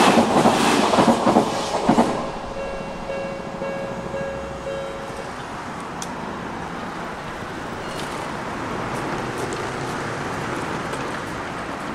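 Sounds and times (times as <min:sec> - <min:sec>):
city street traffic noise: 0:00.0 - 0:11.9
railway crossing warning bell: 0:02.2 - 0:06.3, 0:07.0 - 0:08.7.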